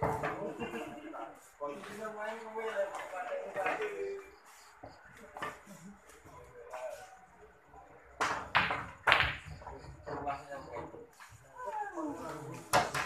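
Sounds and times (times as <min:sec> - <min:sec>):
pool cue and balls clicking: 0:08.2 - 0:11.0, 0:12.5 - 0:13.0.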